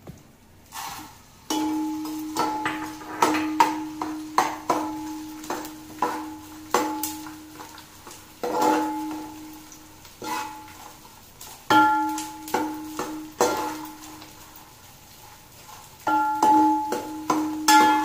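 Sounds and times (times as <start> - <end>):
frying in oil: 0.0 - 18.0
metal spoon knocking on pot: 1.5 - 7.3, 16.1 - 18.0.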